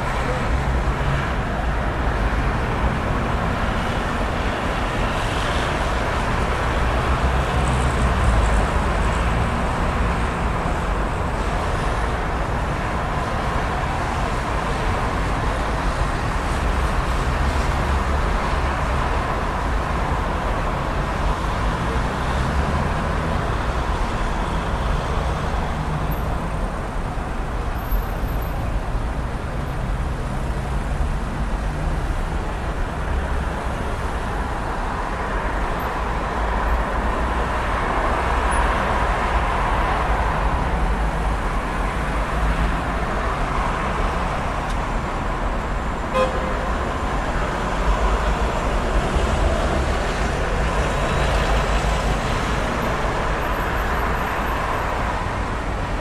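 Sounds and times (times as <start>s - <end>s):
dense road traffic: 0.0s - 56.0s
car horn toot: 46.1s - 46.8s.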